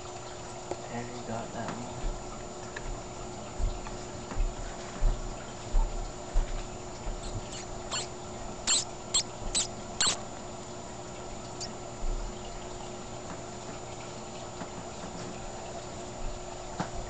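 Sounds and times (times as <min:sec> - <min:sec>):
steady hum: 0:06.9 - 0:12.9
baby mice squeaking: 0:07.2 - 0:10.2, 0:11.6 - 0:11.8.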